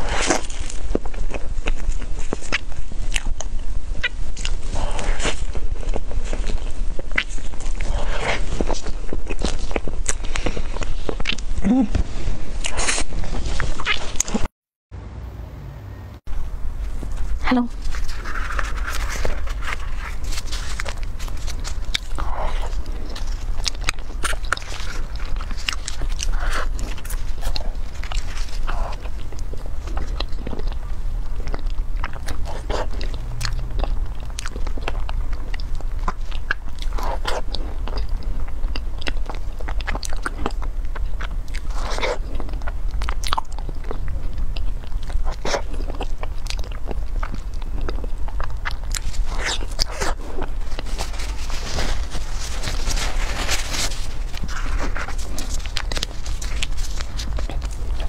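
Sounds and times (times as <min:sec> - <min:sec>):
chewing and mouth clicks: 0:00.0 - 0:14.5, 0:16.9 - 0:58.0
low hum: 0:00.0 - 0:58.0
plastic wrapper crinkling: 0:16.8 - 0:33.2, 0:48.6 - 0:58.0.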